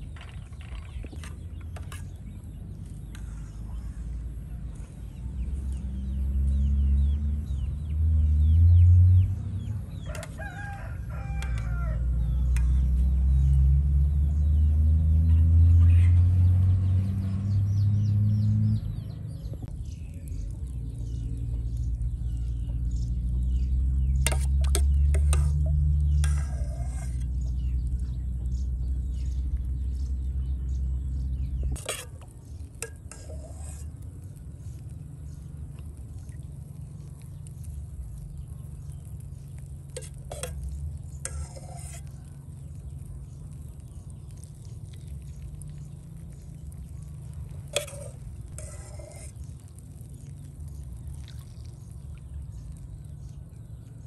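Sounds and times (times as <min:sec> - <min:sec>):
low steady rumble: 0:00.0 - 0:54.0
utensil stirring and clinking: 0:24.1 - 0:27.8, 0:31.6 - 0:53.4.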